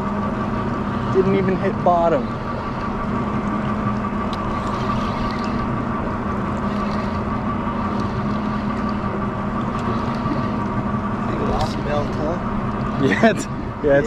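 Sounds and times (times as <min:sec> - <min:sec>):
outboard motor idling: 0:00.0 - 0:14.0
faint ticks: 0:06.5 - 0:09.0.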